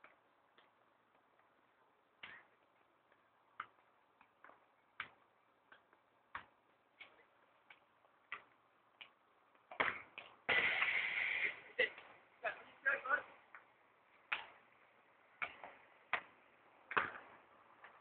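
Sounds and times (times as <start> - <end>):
football being tapped: 16.9 - 18.0.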